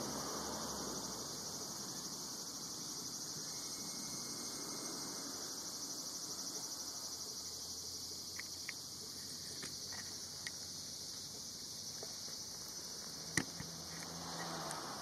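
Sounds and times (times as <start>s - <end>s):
cicadas singing: 0.0s - 15.0s
faint ticks: 8.3s - 12.4s.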